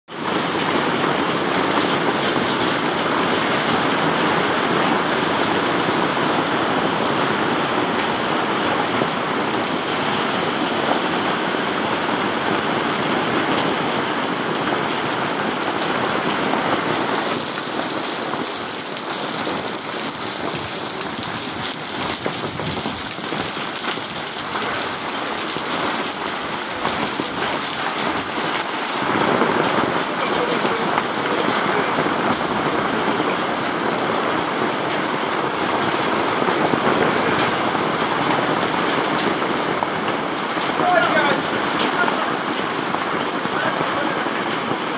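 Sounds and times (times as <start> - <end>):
heavy rain pouring: 0.1 - 44.9.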